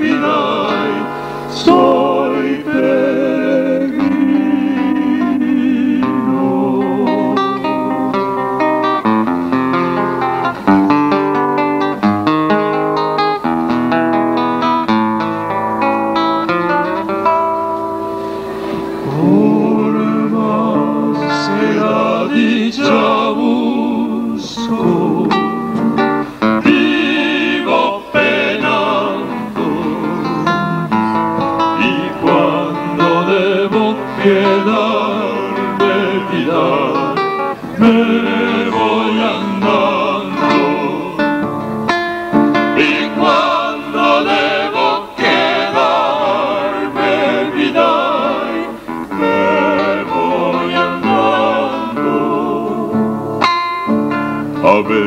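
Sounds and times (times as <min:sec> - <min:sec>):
male vocal group singing: 0:00.0 - 0:08.1, 0:19.0 - 0:41.5, 0:42.6 - 0:53.2, 0:54.6 - 0:55.0
classical acoustic guitar: 0:00.0 - 0:55.0.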